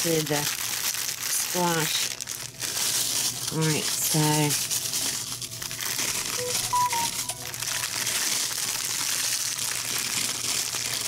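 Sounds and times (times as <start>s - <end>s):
crackers crunching: 0.0s - 11.0s
plastic wrapper crinkling: 0.0s - 11.0s.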